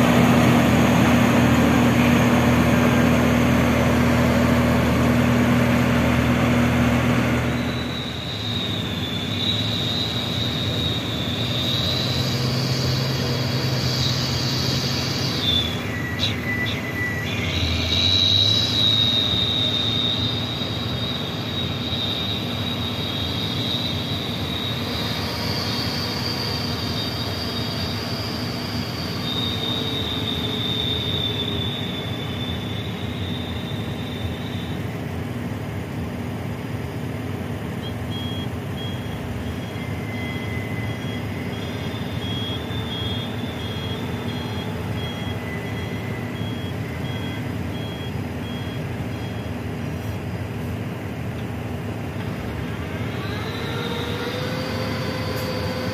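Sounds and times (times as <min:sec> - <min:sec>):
diesel truck engine running: 0:00.0 - 0:55.9
high squealing from truck: 0:00.0 - 0:55.9
reversing alarm beeps: 0:07.4 - 0:35.0, 0:37.8 - 0:50.3, 0:52.6 - 0:55.9.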